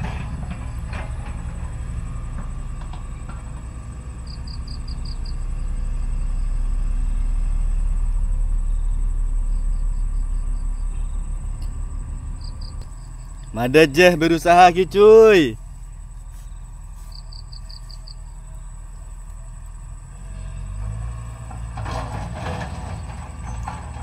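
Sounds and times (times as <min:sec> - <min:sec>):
low rumble: 0:04.5 - 0:13.5.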